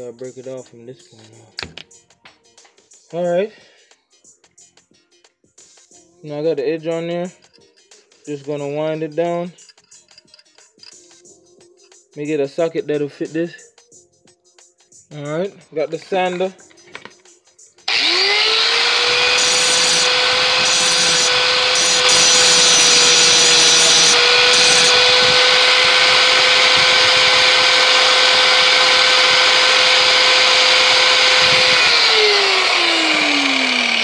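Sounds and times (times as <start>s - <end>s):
angle grinder grinding metal: 17.9s - 34.0s.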